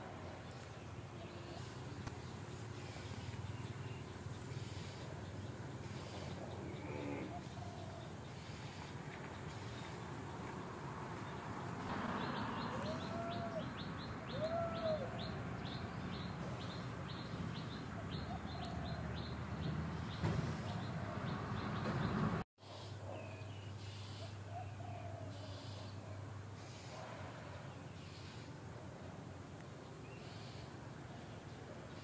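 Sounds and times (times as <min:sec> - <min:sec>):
birds chirping: 0:00.0 - 0:28.6
lower bird calls: 0:00.3 - 0:10.2, 0:12.1 - 0:27.0.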